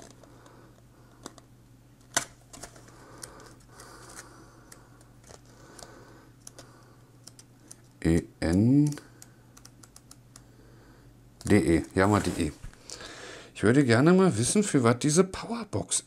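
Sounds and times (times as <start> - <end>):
faint steady hum: 0.0 - 16.0
paper rustling: 11.8 - 12.7.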